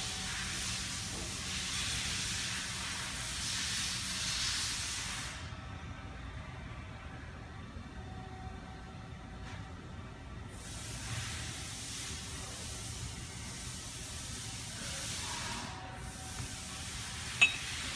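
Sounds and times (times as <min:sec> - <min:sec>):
steady background hiss: 0:07.7 - 0:17.9.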